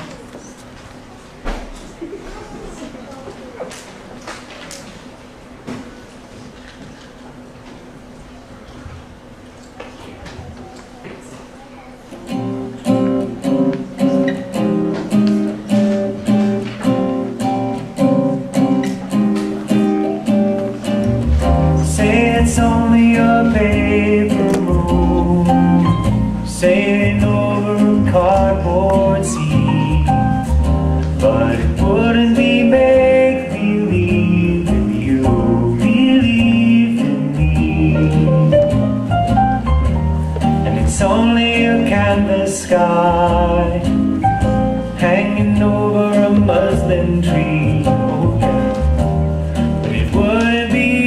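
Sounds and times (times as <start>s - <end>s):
bass line: 20.9s - 51.0s
person singing: 21.6s - 39.0s, 40.6s - 44.3s, 44.9s - 49.0s, 49.8s - 51.0s.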